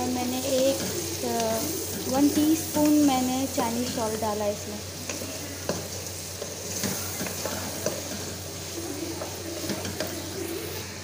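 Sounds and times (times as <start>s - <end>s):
chicken sizzling in oil: 0.0s - 11.0s
spatula scraping a wok: 4.9s - 11.0s.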